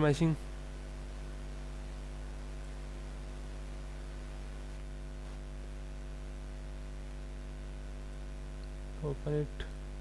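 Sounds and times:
electrical mains hum: 0.0s - 10.0s.

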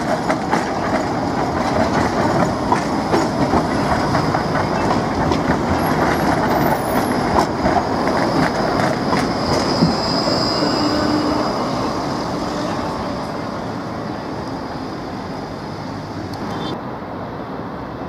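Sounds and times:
tram wheels rumbling over rails: 0.0s - 18.0s
high wheel squeal: 5.8s - 16.8s.

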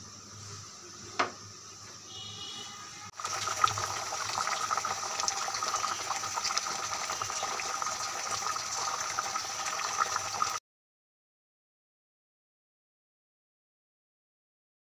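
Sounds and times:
curry bubbling in a pot: 3.2s - 10.6s.

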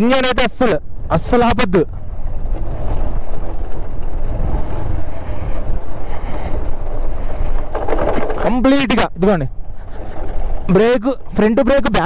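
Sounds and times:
motorcycle engine rumbling: 0.0s - 12.0s.

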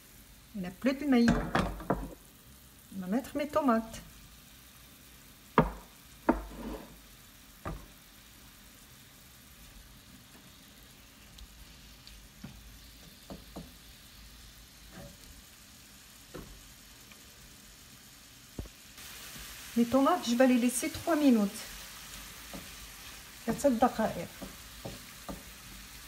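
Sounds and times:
vegetables sizzling in a frying pan: 0.0s - 26.0s
wooden spatula scraping pan: 6.3s - 7.0s.

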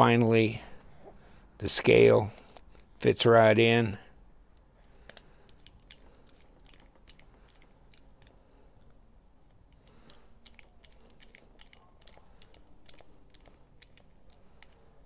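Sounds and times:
screwdriver clicks: 9.5s - 14.8s.

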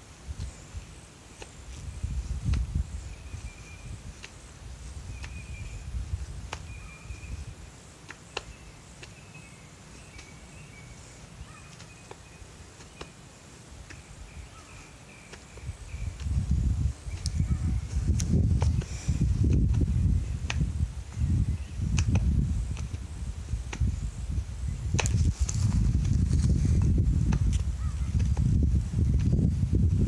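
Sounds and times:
wind rumbling on microphone: 0.0s - 7.8s, 13.7s - 30.0s
sharp clicks: 21.9s - 23.0s.

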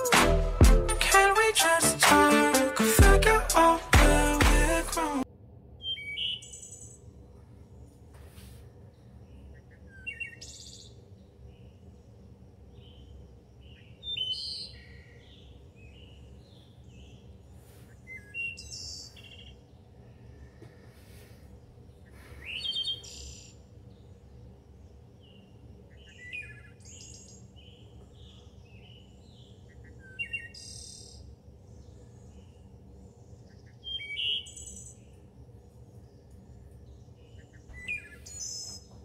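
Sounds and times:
low steady hum: 0.0s - 39.0s
birds chirping and singing: 12.8s - 20.9s, 21.9s - 24.2s, 25.2s - 39.0s.

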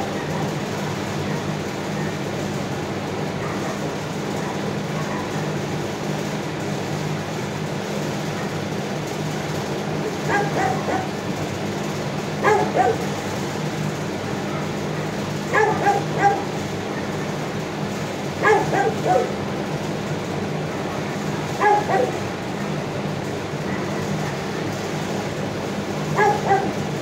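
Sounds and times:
dog barking: 3.4s - 3.8s, 4.4s - 5.4s, 10.3s - 11.2s, 12.4s - 13.1s, 15.5s - 16.5s, 18.4s - 19.4s, 21.6s - 22.2s, 23.7s - 24.4s, 26.2s - 26.8s.

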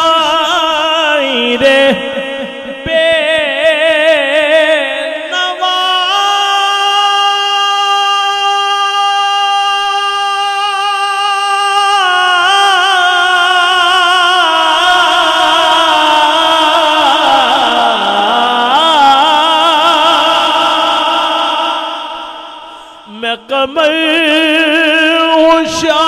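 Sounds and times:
man singing long note: 0.0s - 26.0s.

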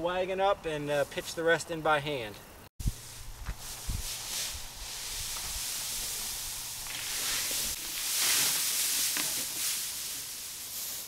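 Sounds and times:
hay rustling as it is forked: 2.8s - 11.0s.

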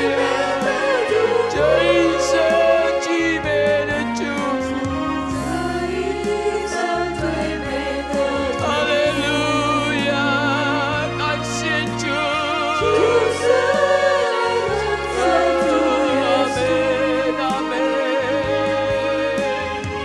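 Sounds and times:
group singing worship song: 0.0s - 20.0s
instrumental accompaniment: 0.0s - 20.0s.

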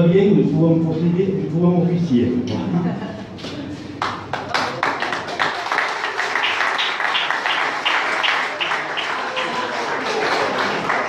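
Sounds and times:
people clapping in unison: 4.0s - 11.0s.

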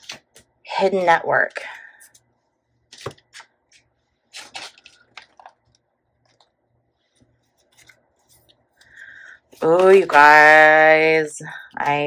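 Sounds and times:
cards rustling and tapping: 0.0s - 0.5s, 2.9s - 6.6s, 7.2s - 8.9s.

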